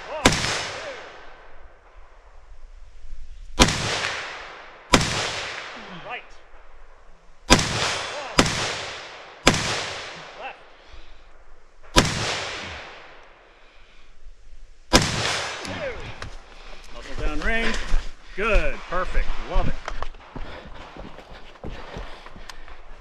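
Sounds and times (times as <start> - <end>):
rifle shots with echo: 0.0 - 1.9, 3.6 - 6.7, 7.5 - 10.6, 11.9 - 13.5, 14.9 - 16.0.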